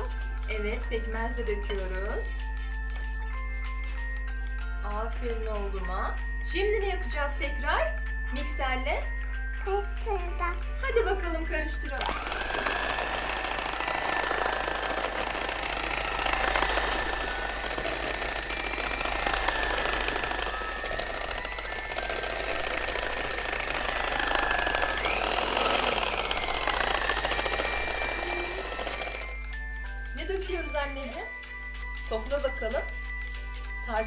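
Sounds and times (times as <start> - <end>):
electric hand mixer whisking: 11.9 - 29.4.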